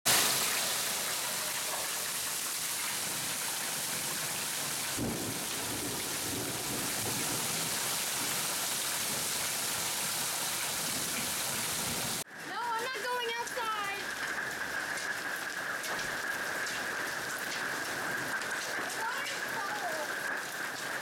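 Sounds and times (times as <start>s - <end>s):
steady rain: 0.1s - 21.0s
thunder rumble: 5.0s - 9.3s.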